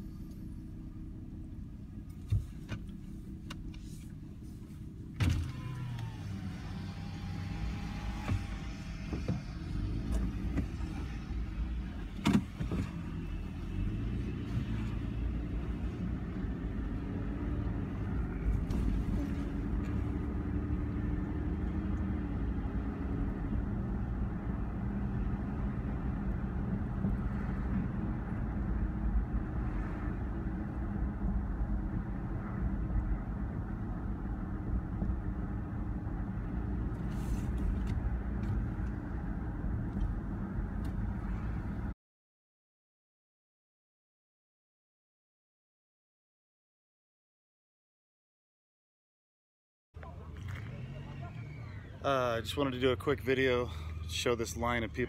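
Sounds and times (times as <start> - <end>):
car engine rumbling in cabin: 0.0 - 42.0, 50.0 - 55.0.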